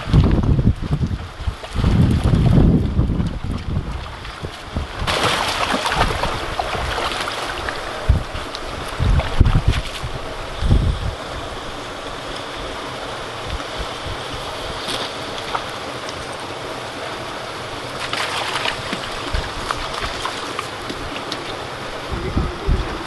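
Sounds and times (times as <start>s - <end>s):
creek water rushing: 0.0s - 23.0s.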